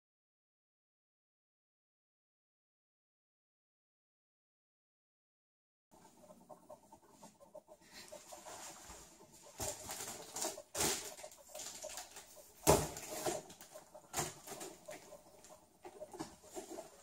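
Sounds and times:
foil balloon crinkling: 8.2s - 15.1s.

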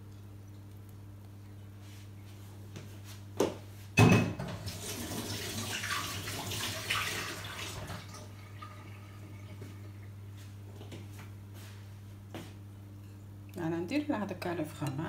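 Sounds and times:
kitchen tap running: 4.4s - 9.8s.

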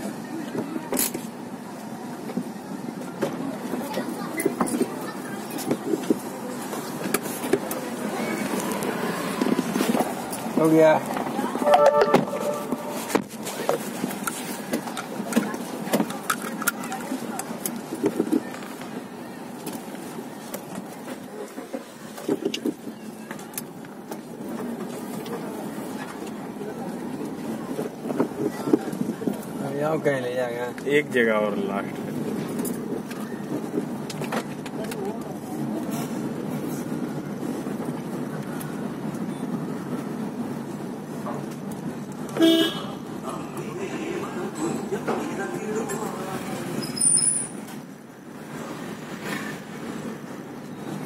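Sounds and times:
car cabin road and engine noise: 0.0s - 51.0s
car horn honk: 11.6s - 13.2s, 42.4s - 42.9s.

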